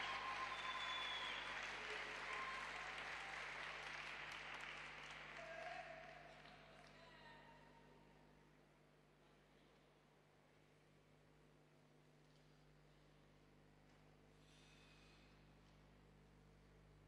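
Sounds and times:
audience applauding: 0:00.0 - 0:07.1.

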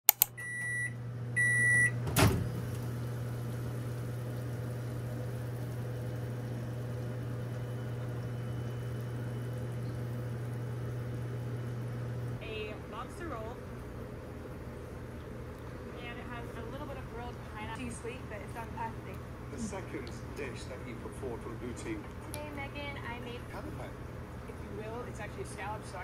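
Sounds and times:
microwave keypad beeps: 0:00.1 - 0:02.0
microwave starting click: 0:00.1 - 0:03.0
microwave humming: 0:00.1 - 0:26.0.

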